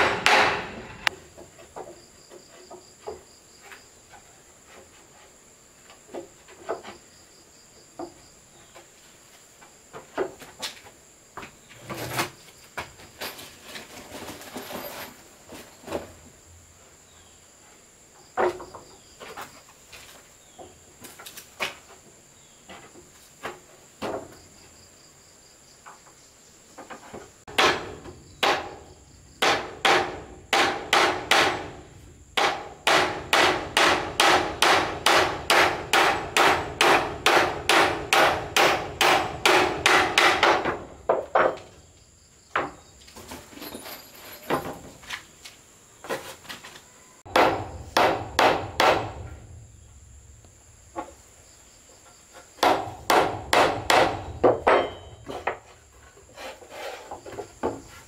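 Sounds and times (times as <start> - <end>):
hammer striking wood: 0.0 - 1.2, 27.5 - 31.8, 32.4 - 41.6, 47.3 - 49.3, 52.6 - 55.6
high insect drone: 14.2 - 58.0.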